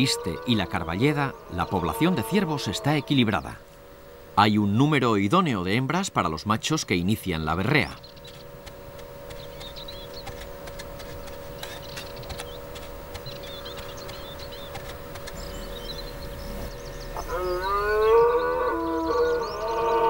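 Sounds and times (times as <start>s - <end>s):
faint steady hum: 0.0s - 20.0s
deer stag bellowing: 17.2s - 20.0s.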